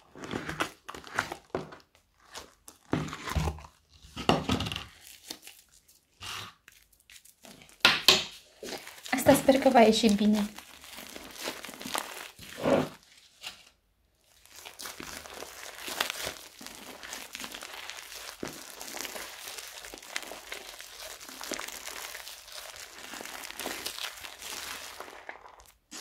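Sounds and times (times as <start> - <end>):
slime crackling when squeezed: 4.9 - 13.0, 14.2 - 26.0.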